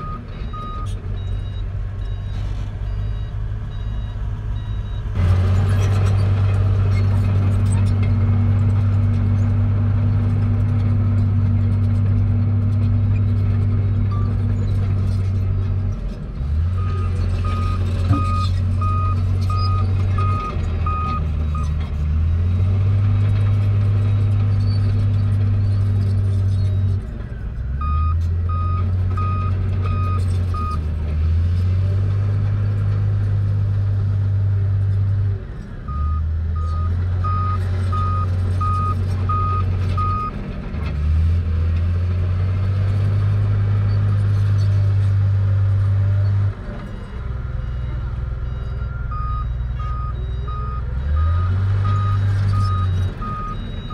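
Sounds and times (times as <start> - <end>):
reversing alarm beeps: 0.0 - 5.0, 35.9 - 40.3, 47.6 - 53.9
heavy diesel engine under load: 0.0 - 53.9.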